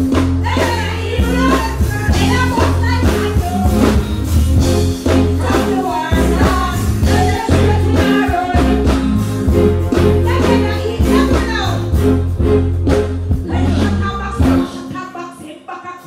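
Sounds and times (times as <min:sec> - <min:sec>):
bass-driven backing rhythm: 0:00.0 - 0:15.3
woman singing and chanting: 0:13.5 - 0:16.0.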